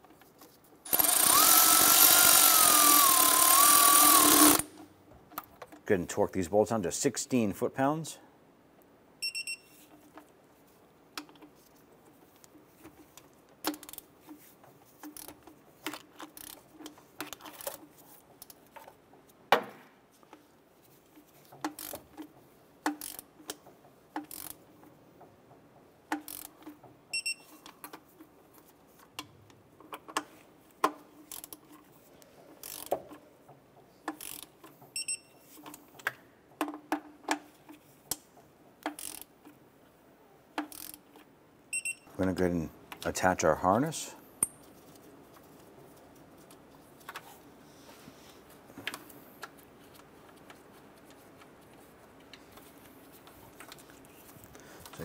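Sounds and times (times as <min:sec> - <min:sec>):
torque wrench ratcheting clicks: 0:00.9 - 0:04.7, 0:23.0 - 0:23.2, 0:26.2 - 0:26.5, 0:32.6 - 0:32.9, 0:34.2 - 0:34.5, 0:38.9 - 0:39.3, 0:40.6 - 0:41.0
short high beep: 0:09.2 - 0:09.8.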